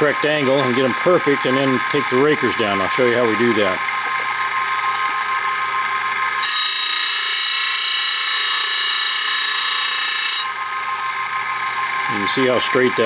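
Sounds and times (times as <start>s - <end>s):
high grinding of abrasive wheel: 6.4s - 13.0s.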